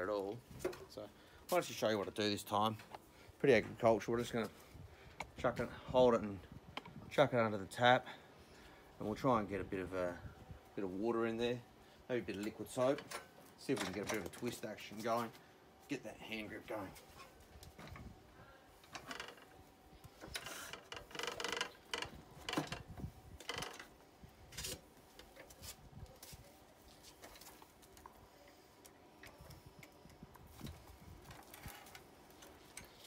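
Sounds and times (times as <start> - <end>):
handling knocks clicks and rustles: 12.3 - 15.4.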